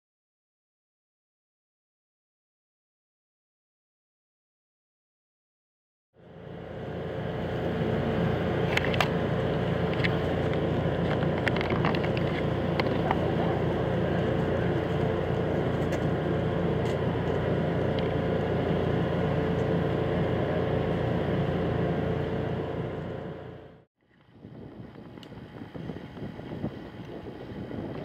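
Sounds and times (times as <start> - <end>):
locomotive engine drone: 6.2 - 28.0.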